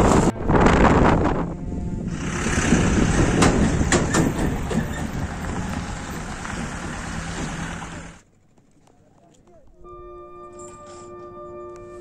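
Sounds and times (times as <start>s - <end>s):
wind on microphone: 0.0s - 7.7s
motorcycle road noise on gravel: 2.1s - 9.7s.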